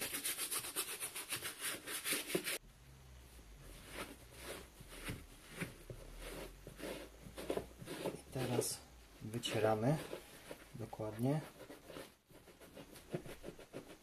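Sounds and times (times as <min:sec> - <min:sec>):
cloth wiping a wet boot: 0:03.7 - 0:14.0
brush scrubbing a boot: 0:03.8 - 0:14.0.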